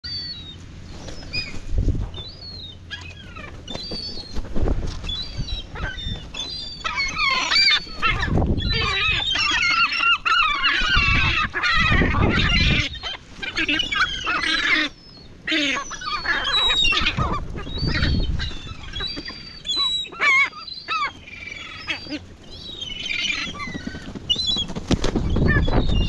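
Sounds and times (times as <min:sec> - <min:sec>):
gulls calling: 0:00.0 - 0:26.0
wings flapping: 0:00.9 - 0:12.8, 0:20.9 - 0:26.0.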